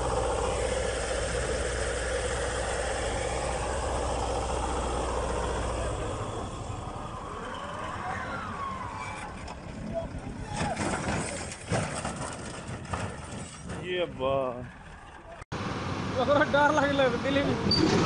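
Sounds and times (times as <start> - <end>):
tractor engine running: 0.0 - 14.1.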